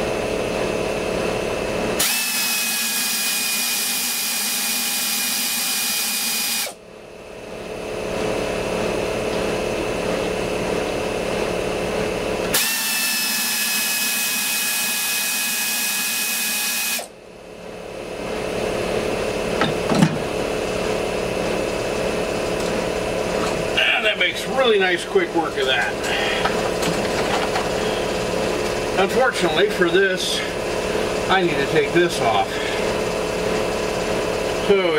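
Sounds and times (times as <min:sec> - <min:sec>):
steady machine hum: 0:00.0 - 0:34.9
pneumatic ratchet spinning: 0:02.0 - 0:06.8, 0:12.5 - 0:17.1.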